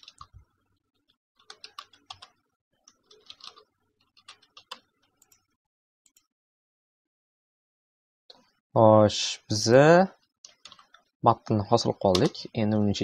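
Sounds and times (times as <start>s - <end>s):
typing on computer keyboard: 0.0s - 0.3s, 1.4s - 5.5s, 10.4s - 11.1s.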